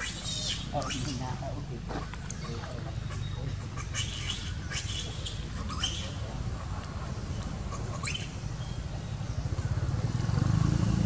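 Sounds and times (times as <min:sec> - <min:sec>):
high-pitched animal squeaks: 0:00.0 - 0:01.3, 0:03.1 - 0:06.2
steady low rumble: 0:00.5 - 0:10.4.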